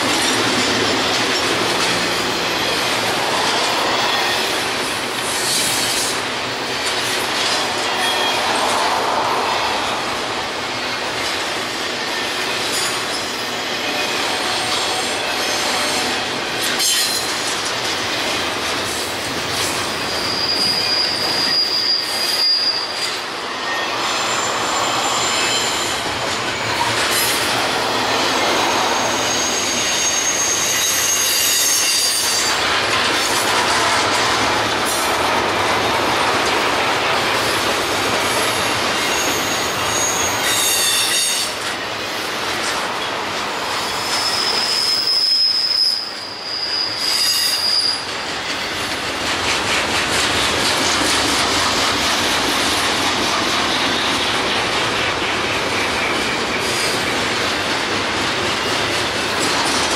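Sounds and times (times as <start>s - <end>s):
freight train wheels on rails: 0.0s - 59.9s
high-pitched wheel squeal: 7.7s - 10.0s, 19.9s - 32.6s, 39.0s - 41.6s, 43.7s - 48.5s.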